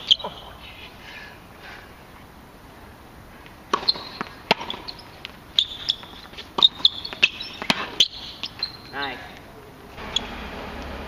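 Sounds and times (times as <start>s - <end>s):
shoes squeaking on court: 0.0s - 1.0s, 3.7s - 9.4s
tennis ball bouncing and hit: 3.7s - 8.9s.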